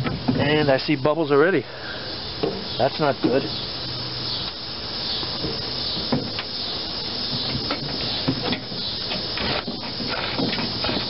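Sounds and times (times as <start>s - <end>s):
steady hissing: 0.0s - 11.0s
hands tapping and rubbing tire: 5.3s - 11.0s.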